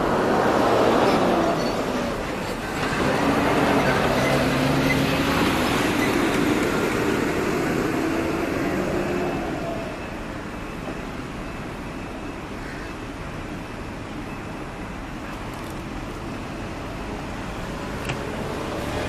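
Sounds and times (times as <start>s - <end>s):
vehicle engine humming: 0.0s - 12.2s, 13.5s - 19.0s
road traffic noise: 0.0s - 19.0s.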